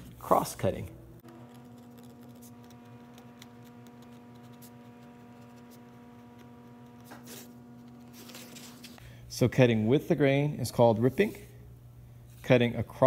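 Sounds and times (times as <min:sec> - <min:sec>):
faint steady hum: 0:00.0 - 0:13.0
pencil writing on wood: 0:01.5 - 0:08.0.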